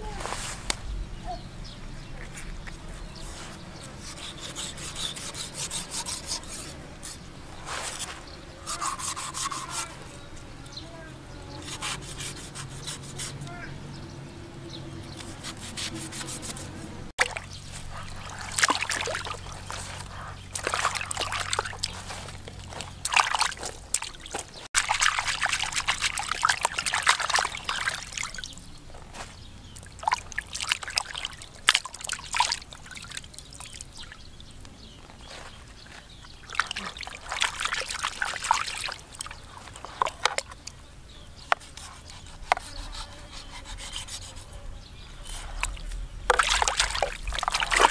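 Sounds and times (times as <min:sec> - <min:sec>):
knife sawing on wooden board: 0:03.9 - 0:07.2, 0:07.8 - 0:10.1, 0:11.6 - 0:13.4, 0:15.2 - 0:16.9, 0:41.5 - 0:44.6
water sloshing and splashing: 0:17.2 - 0:40.8, 0:45.2 - 0:47.9.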